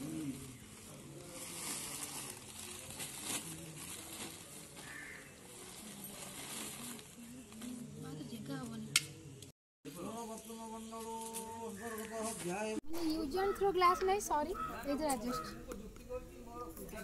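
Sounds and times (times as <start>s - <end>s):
plastic sack crinkling: 0.3s - 7.3s.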